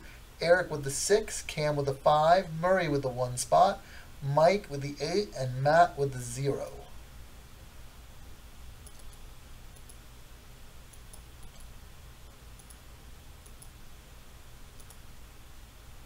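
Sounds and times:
low steady hum: 0.0s - 16.0s
computer mouse clicks: 8.8s - 10.0s, 10.9s - 11.8s, 12.5s - 12.8s, 13.4s - 13.8s, 14.8s - 15.0s.

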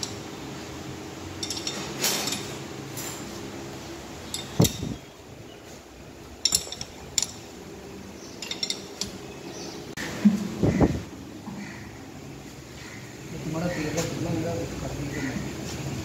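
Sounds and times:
tools clanking on metal axle: 0.0s - 0.3s, 1.4s - 3.4s, 4.2s - 5.1s, 6.3s - 7.6s, 8.2s - 9.6s
sharp metallic clank: 1.4s - 3.4s, 4.3s - 5.1s.

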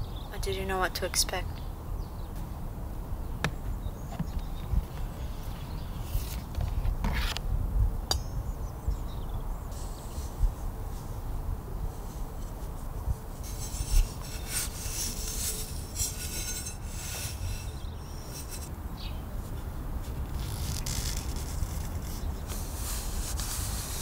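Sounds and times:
metal garden tools scraping: 11.9s - 18.7s.

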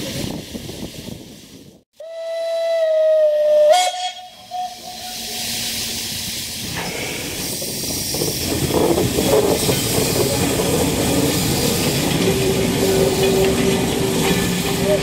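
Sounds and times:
steam locomotive whistle: 2.0s - 6.3s, 12.3s - 15.0s
steam hissing: 3.8s - 15.0s.

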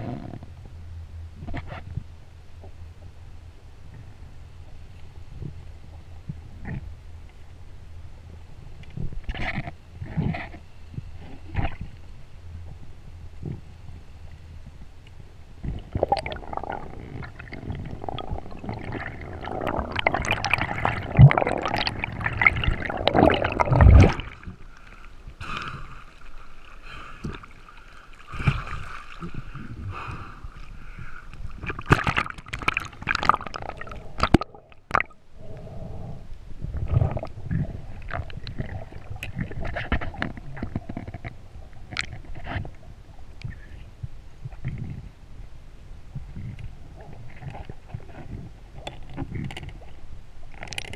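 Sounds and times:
water gurgling and sloshing: 0.0s - 50.9s
water gushes: 15.8s - 24.7s.

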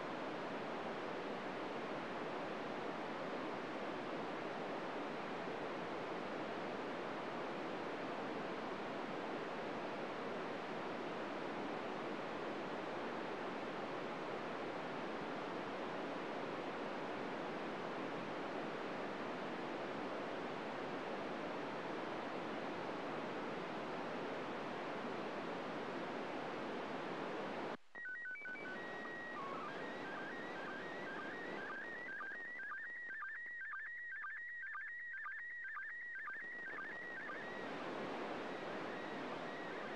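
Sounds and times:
radio static hiss: 26.8s - 33.0s, 36.3s - 39.9s.

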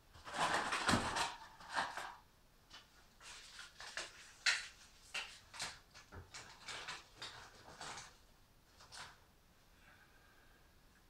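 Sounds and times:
rustling of fire-laying materials: 0.1s - 9.3s.

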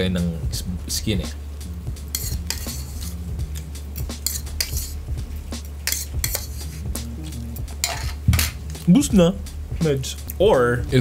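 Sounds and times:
steady low hum: 0.0s - 11.0s
fork clinking against bowl: 2.1s - 3.1s, 4.0s - 5.0s, 5.8s - 6.6s, 7.8s - 8.6s.

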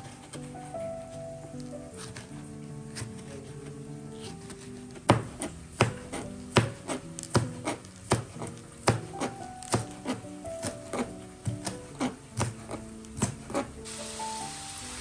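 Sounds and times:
soft background music: 0.0s - 15.0s
knife chopping on plastic board: 1.9s - 13.8s.

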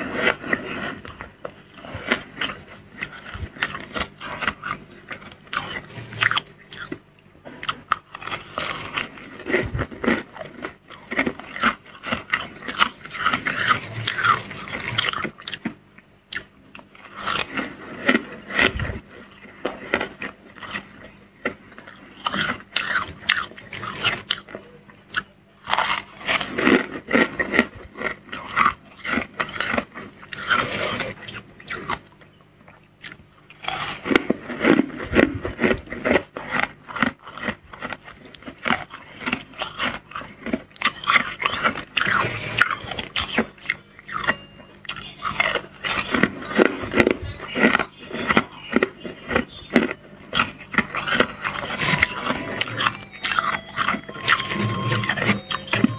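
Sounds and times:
metal spoon scraping frost: 0.0s - 7.0s, 28.1s - 31.8s, 36.6s - 55.9s.

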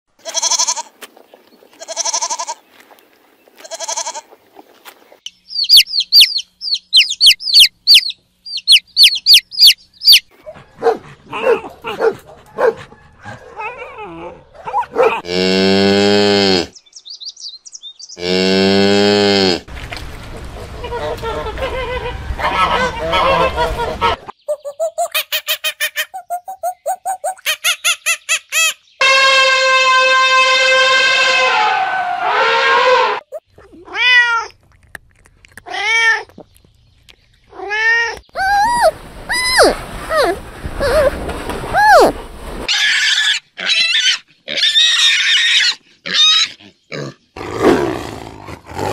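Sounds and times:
faint high chirping: 5.2s - 10.3s
cow mooing: 15.1s - 16.7s
elephant trumpeting: 29.3s - 33.2s
cat meowing: 33.6s - 34.5s.

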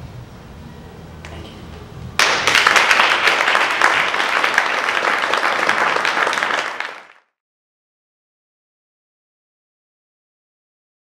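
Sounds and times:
audience applauding: 2.2s - 7.4s.

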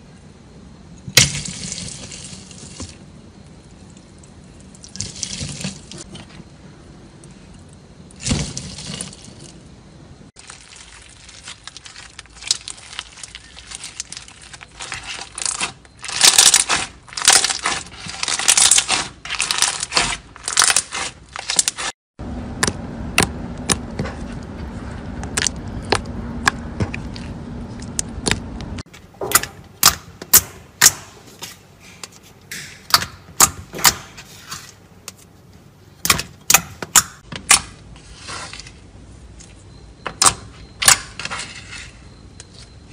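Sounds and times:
slime crunching and crackling: 10.4s - 21.9s
slime squishing: 10.4s - 21.9s
low steady hum: 22.2s - 42.9s.

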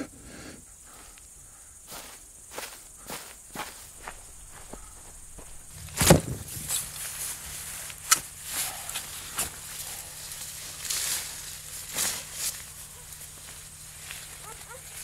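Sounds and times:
rustling through plants: 1.9s - 15.0s
faint low hum: 3.6s - 15.0s
sharp snap: 8.0s - 8.3s.

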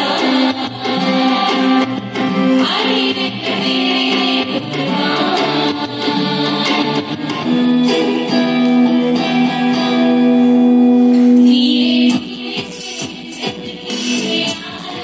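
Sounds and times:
women singing: 0.0s - 10.1s, 10.8s - 15.0s
live band music: 0.0s - 14.7s.

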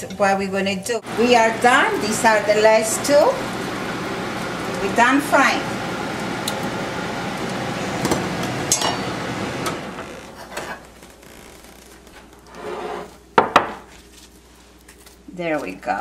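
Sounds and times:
oil sizzling in frying pan: 1.2s - 9.5s.

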